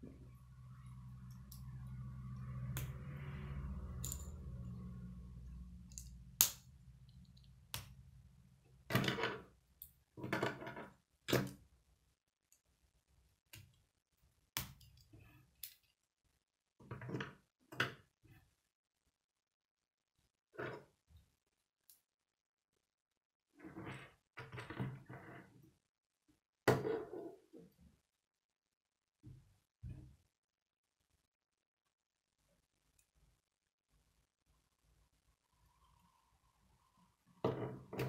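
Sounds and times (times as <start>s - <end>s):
low hum: 0.0s - 7.5s.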